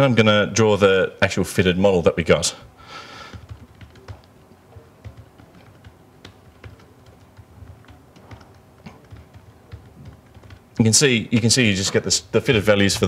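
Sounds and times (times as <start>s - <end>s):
typing on computer keyboard: 3.2s - 13.0s.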